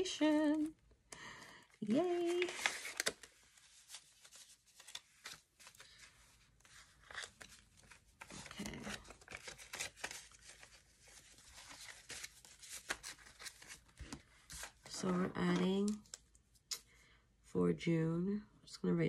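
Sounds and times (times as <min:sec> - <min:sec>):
paper rustling and crinkling: 0:01.8 - 0:16.2.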